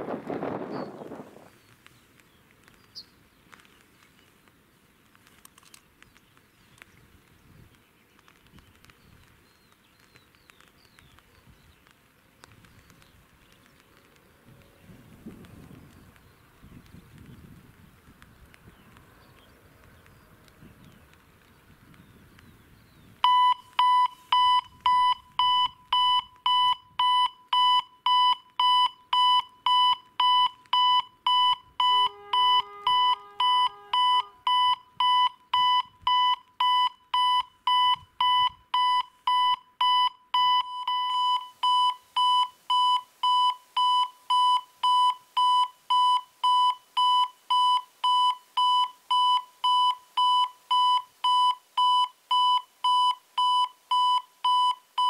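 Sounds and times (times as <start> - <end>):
level crossing warning beeps: 23.2 - 55.0.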